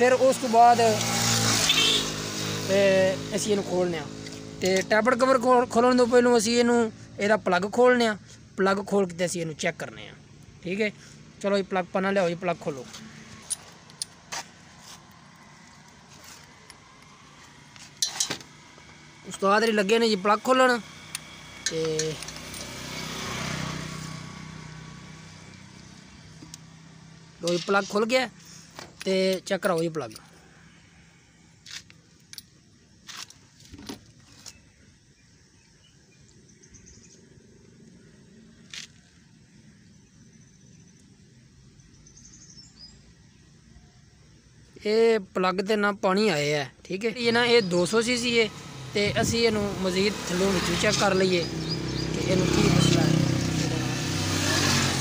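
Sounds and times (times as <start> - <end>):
metallic clicks of spanner: 21.1 - 22.8.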